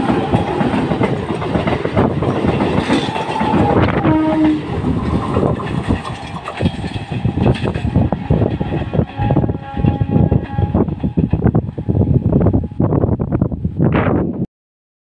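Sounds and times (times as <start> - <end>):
train wheels clattering over rails: 0.0 - 11.7
train horn: 3.0 - 5.5, 8.0 - 13.0.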